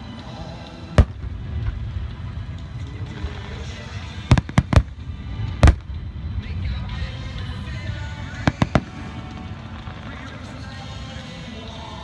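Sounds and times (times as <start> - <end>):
fireworks bangs: 1.0 - 1.8, 4.3 - 6.0, 8.3 - 10.3
low rumble: 1.0 - 10.8.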